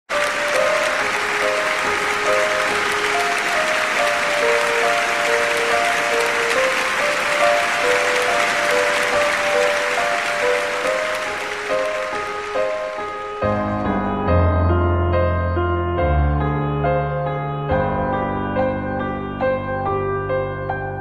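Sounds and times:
audience applauding: 0.1s - 14.0s
slow instrumental melody: 0.1s - 21.0s.

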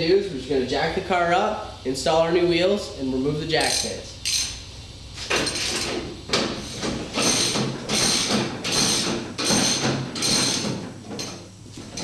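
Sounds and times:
floor jack pumping strokes: 5.2s - 12.0s.

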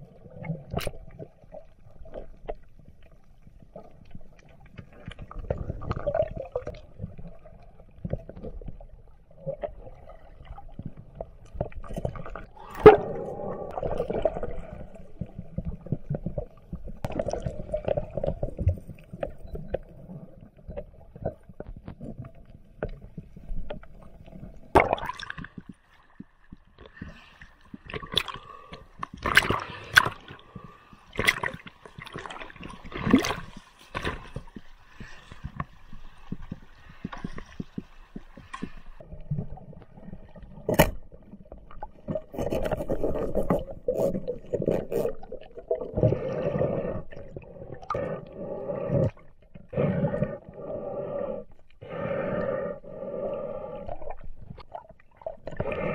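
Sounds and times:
water splashing: 26.9s - 47.0s.

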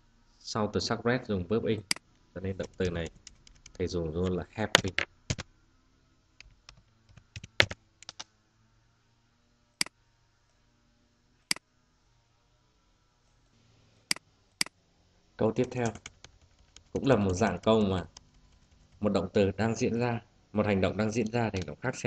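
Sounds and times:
keyboard typing: 2.6s - 5.4s, 6.4s - 8.2s, 15.6s - 19.2s.

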